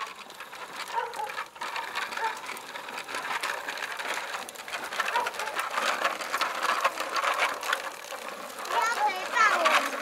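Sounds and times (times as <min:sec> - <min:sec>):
bicycle rattling on concrete: 0:00.0 - 0:10.0.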